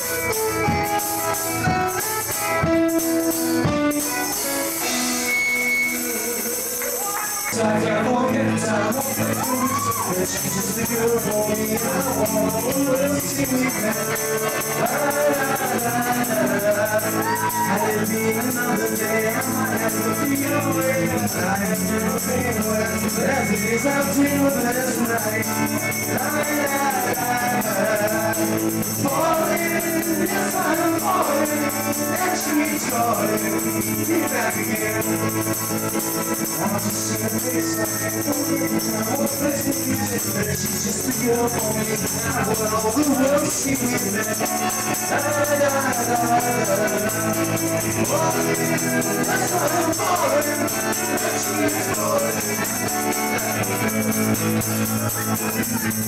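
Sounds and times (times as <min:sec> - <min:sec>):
live band playing: 0:00.0 - 0:56.0
man singing into a microphone: 0:03.6 - 0:56.0.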